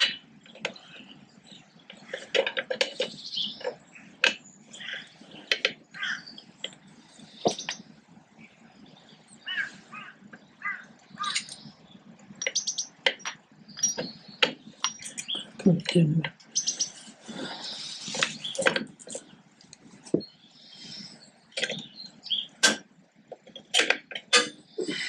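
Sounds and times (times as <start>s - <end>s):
bird calling: 0.0s - 19.4s.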